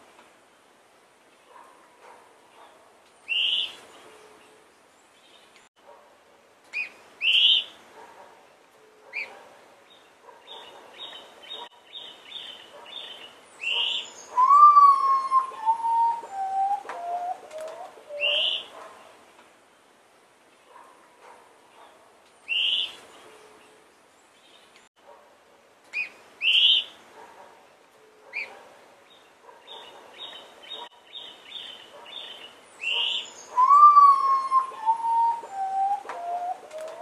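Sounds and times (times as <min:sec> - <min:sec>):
birds chirping: 0:08.4 - 0:19.2, 0:27.9 - 0:37.0
bird whistling descending notes: 0:14.4 - 0:17.4, 0:33.6 - 0:37.0.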